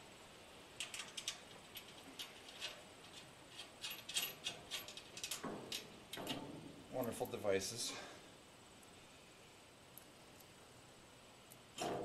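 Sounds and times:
metal hardware clicking: 0:00.8 - 0:06.4.

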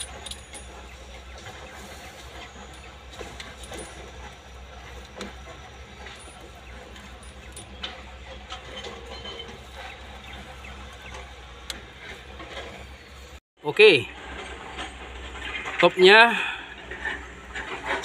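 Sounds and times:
hand tools clicking on bolts: 0:00.0 - 0:13.0.

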